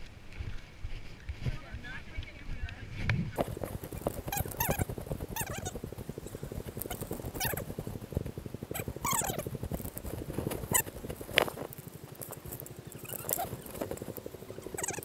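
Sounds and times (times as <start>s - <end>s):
footsteps on dry corn litter: 3.4s - 15.0s.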